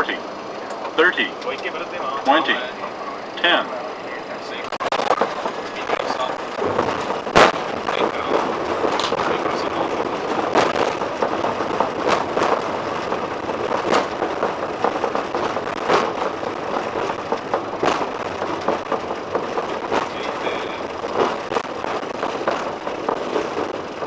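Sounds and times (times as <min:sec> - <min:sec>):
jet engine and airflow rush: 0:00.0 - 0:24.0
sharp knock: 0:04.7 - 0:23.7.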